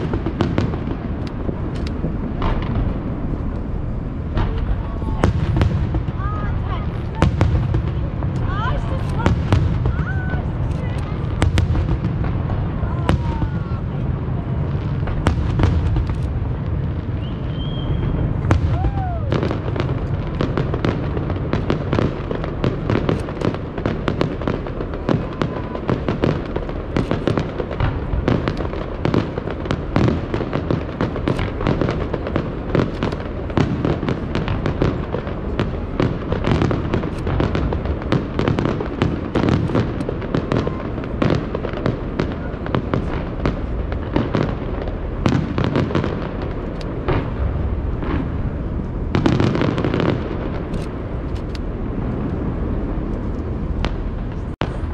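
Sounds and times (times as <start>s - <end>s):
low rumble: 0.0s - 21.5s
fireworks bangs and crackles: 0.0s - 54.9s.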